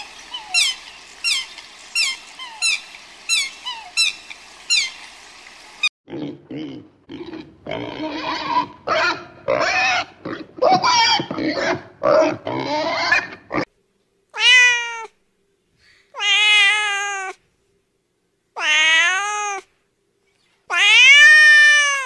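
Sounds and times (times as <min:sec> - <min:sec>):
pigs grunting: 0:06.1 - 0:13.7
kitten meowing: 0:16.2 - 0:17.4, 0:18.6 - 0:19.6, 0:20.7 - 0:22.0.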